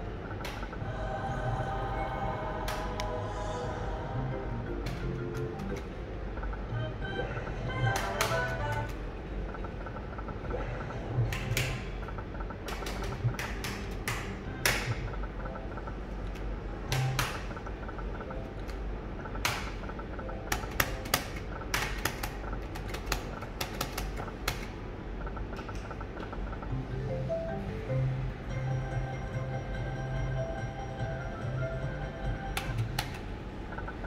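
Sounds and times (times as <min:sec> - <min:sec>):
slot machine clicks: 0:04.5 - 0:06.8, 0:07.6 - 0:10.4, 0:11.2 - 0:24.8, 0:26.9 - 0:34.0.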